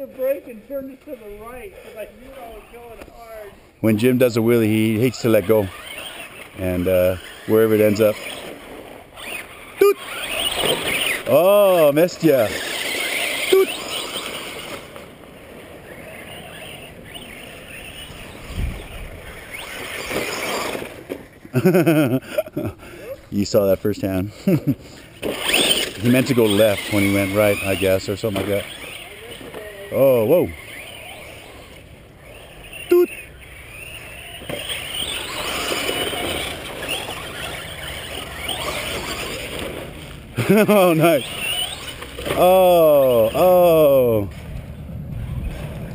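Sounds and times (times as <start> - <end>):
radio-controlled truck motors: 0.0 - 45.9
rising motor whine: 25.2 - 45.9.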